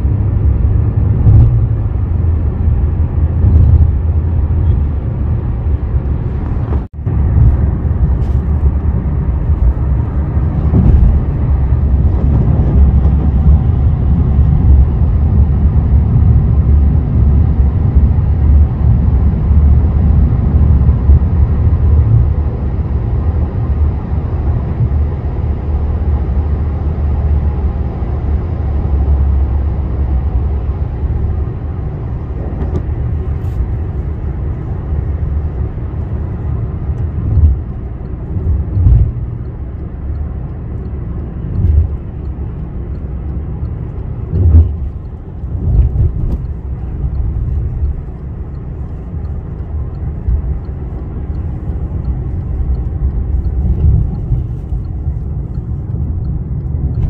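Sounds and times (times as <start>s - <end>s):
car road and engine rumble: 0.0s - 57.0s
low thumps: 1.1s - 2.1s, 3.3s - 4.3s, 6.3s - 15.0s.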